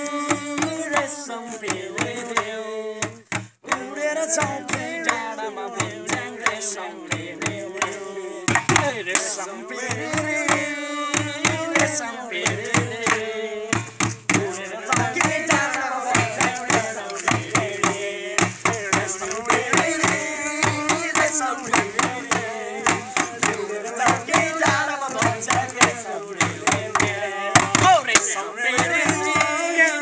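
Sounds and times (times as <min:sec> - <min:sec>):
men singing: 0:00.0 - 0:30.0
plastic bucket drum thumps: 0:01.7 - 0:29.7
stick hitting plastic jerrycan: 0:12.5 - 0:29.6.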